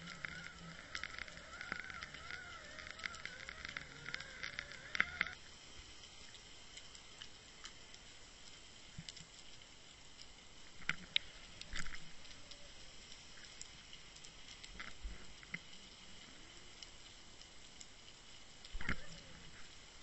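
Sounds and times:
wavering whine: 0:00.0 - 0:05.4
steady underwater hiss: 0:00.0 - 0:20.0
underwater clicks and crackles: 0:00.0 - 0:20.0.

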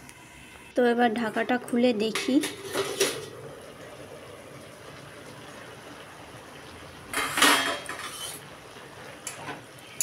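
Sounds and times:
pan simmering hiss: 0:00.0 - 0:10.0
metal lid clattering: 0:02.1 - 0:03.3, 0:07.1 - 0:08.4.

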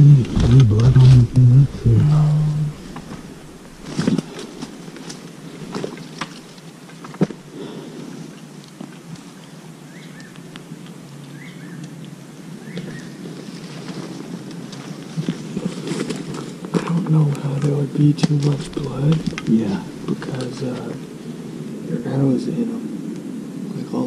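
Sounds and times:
footsteps through undergrowth: 0:02.7 - 0:07.5, 0:12.7 - 0:16.8
twigs snapping: 0:02.7 - 0:07.5, 0:18.2 - 0:20.9
small bird chirping: 0:11.3 - 0:12.0.

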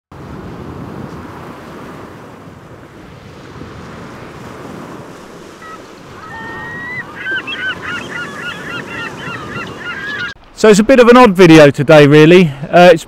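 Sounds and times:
waves breaking in surf: 0:00.1 - 0:11.2
birds calling: 0:05.2 - 0:10.4.

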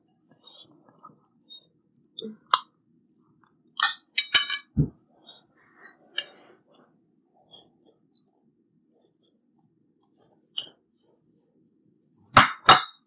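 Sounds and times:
chopsticks clinking on ceramic bowls: 0:03.8 - 0:04.7.

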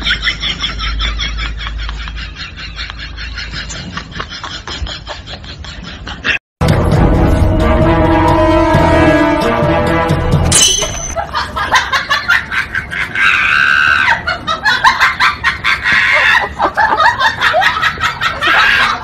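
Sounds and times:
background music: 0:06.6 - 0:11.2.

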